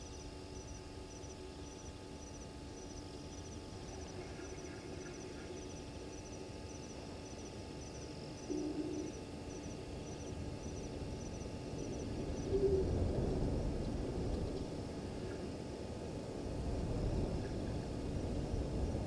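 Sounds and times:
faint high chirping: 0.0s - 12.8s
owl hooting: 0.0s - 13.0s.

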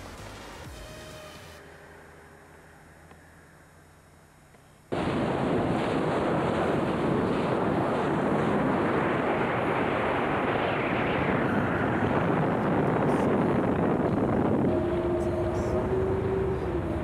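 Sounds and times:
wind rushing on microphone: 5.2s - 17.0s.

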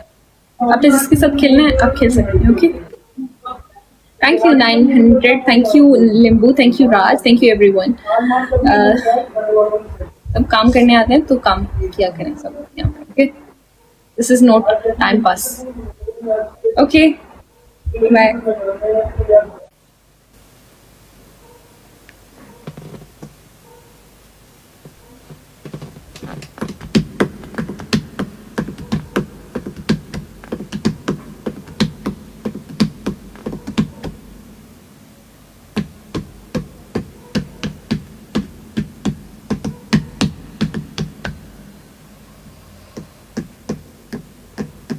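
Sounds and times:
sharp low knocks: 25.6s - 34.4s, 35.7s - 41.5s.

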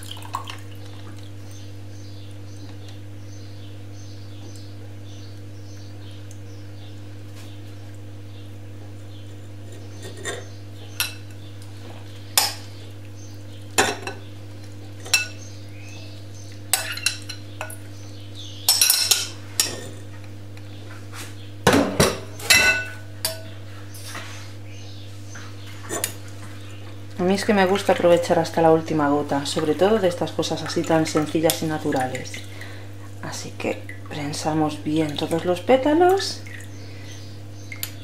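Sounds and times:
spoon clinking and scraping bowl: 9.7s - 11.4s, 16.8s - 17.8s.

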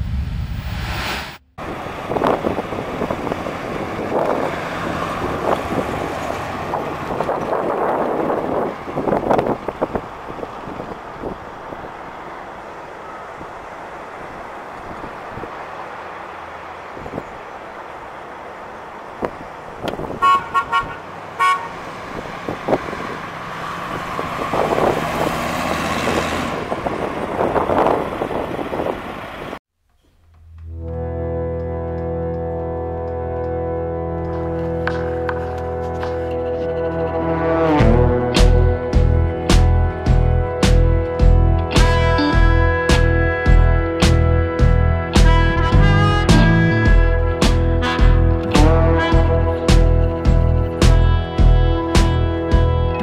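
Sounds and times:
truck engine driving by: 0.0s - 29.6s, 30.4s - 53.0s
wind buffeting microphone: 1.6s - 12.7s, 19.1s - 20.2s, 21.8s - 29.6s
car horn toots: 20.1s - 21.8s, 30.7s - 39.2s, 41.9s - 53.0s.

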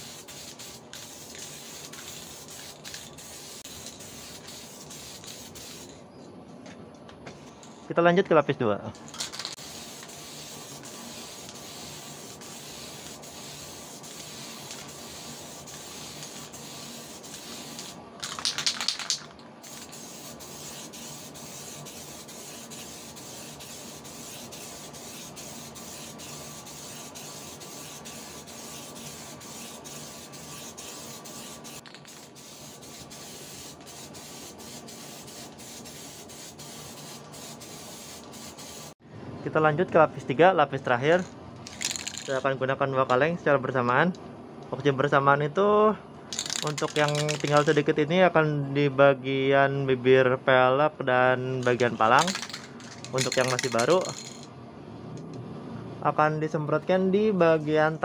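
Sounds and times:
aerosol spray can hissing: 0.0s - 5.9s, 9.3s - 39.0s.

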